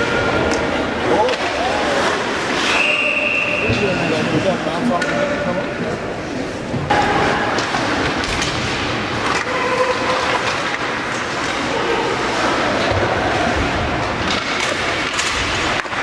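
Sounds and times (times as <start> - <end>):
rumble and scrape of hockey play: 0.0 - 16.0.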